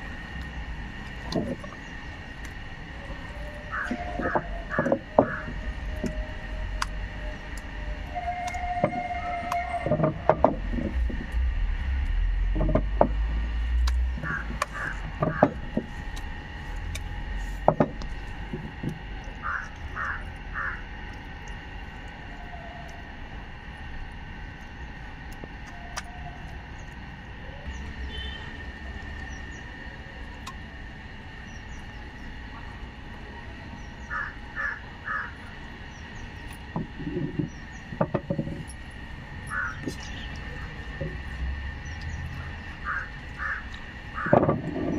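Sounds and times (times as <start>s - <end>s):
crows cawing: 3.6s - 5.6s, 14.1s - 15.6s, 19.4s - 20.9s, 34.0s - 35.6s, 39.5s - 39.9s, 42.4s - 44.4s
sharp knocks: 14.2s - 15.9s.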